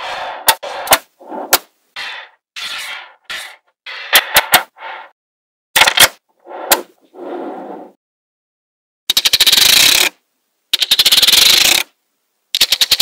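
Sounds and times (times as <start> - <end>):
magnetic balls rubbing: 0.0 - 5.1.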